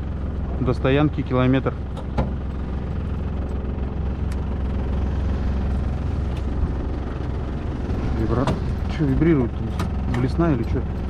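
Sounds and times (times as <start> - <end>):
outboard motor running: 0.0 - 11.0
wind: 0.0 - 11.0.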